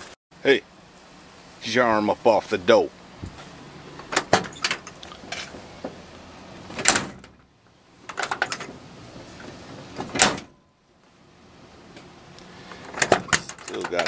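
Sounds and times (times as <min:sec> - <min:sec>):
steel car door slamming: 0:06.7 - 0:07.4, 0:09.9 - 0:10.6.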